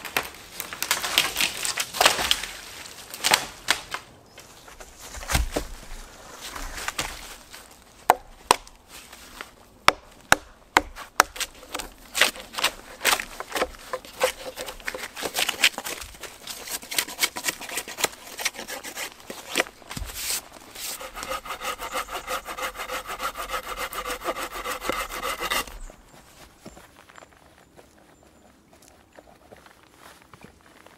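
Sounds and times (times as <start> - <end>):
knife scraping wooden pole: 10.8 - 26.0
hand saw cutting wood: 11.2 - 25.8.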